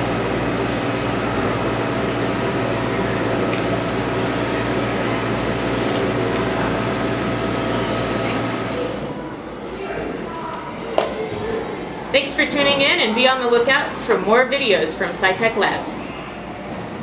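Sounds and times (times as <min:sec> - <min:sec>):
machine hum: 0:00.0 - 0:09.6.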